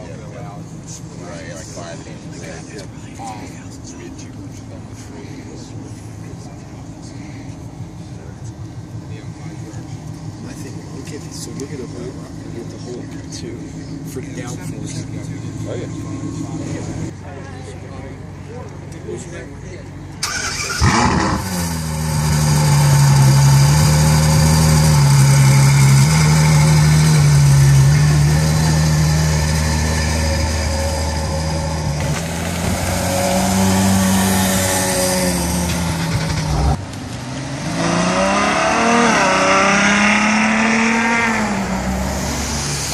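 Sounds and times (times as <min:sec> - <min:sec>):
sports car engine revving: 0:20.2 - 0:42.9.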